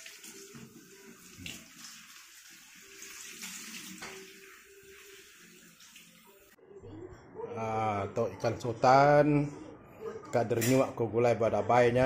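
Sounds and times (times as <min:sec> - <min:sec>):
tap water splashing in sink: 0:03.3 - 0:04.4.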